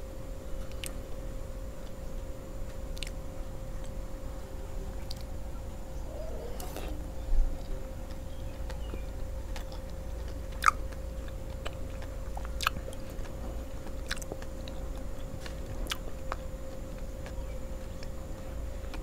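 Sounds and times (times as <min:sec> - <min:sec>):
faint hum: 0:00.0 - 0:19.0
chewing with wet mouth clicks: 0:00.6 - 0:01.0, 0:02.7 - 0:03.2, 0:05.0 - 0:05.4, 0:07.5 - 0:19.0.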